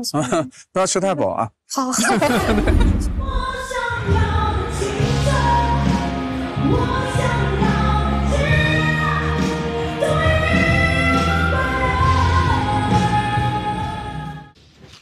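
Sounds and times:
woman singing pop song: 3.2s - 14.4s.

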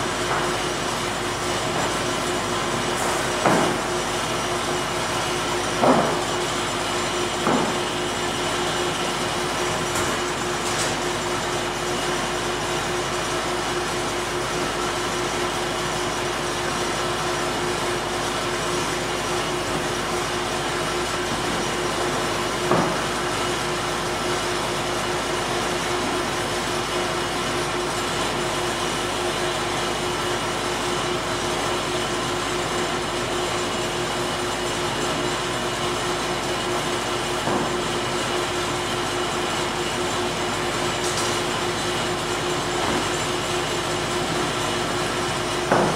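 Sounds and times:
sawmill machinery running: 0.0s - 45.9s
board knocking on stack: 3.0s - 4.0s, 5.8s - 6.3s, 7.4s - 7.9s, 22.6s - 23.0s, 37.4s - 37.8s, 42.8s - 43.3s, 45.7s - 45.9s.

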